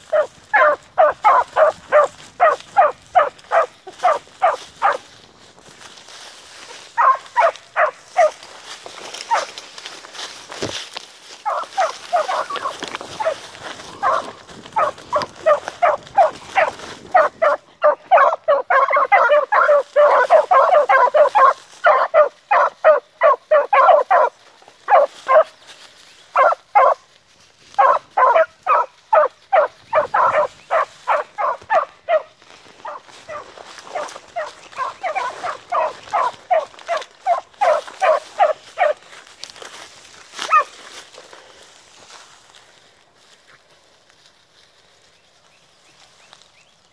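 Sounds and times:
dogs barking: 0.0s - 5.2s, 6.6s - 9.9s, 11.3s - 25.6s, 26.3s - 27.1s, 27.7s - 39.2s, 40.4s - 40.8s.

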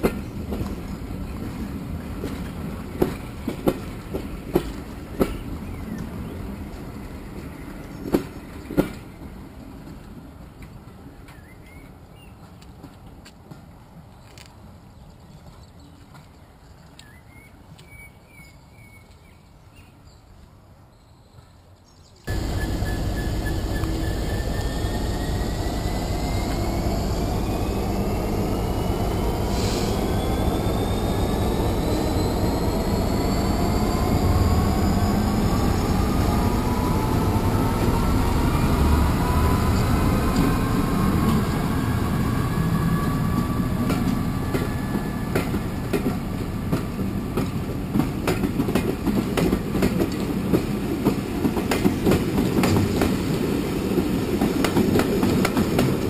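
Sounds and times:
wheels clicking over rail joints: 0.0s - 6.9s, 43.3s - 53.2s, 53.9s - 56.0s
diesel locomotive engine rising: 22.3s - 56.0s.

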